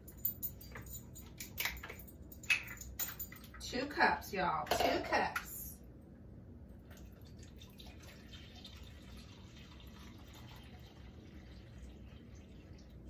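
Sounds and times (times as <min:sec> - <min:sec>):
juice pouring trickle: 0:06.7 - 0:13.0.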